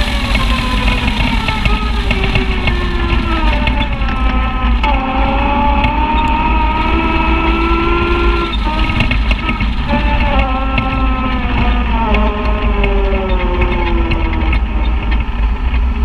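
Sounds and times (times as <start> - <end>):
utility vehicle engine running: 0.0 - 16.0
wind and tyre rumble: 0.0 - 16.0.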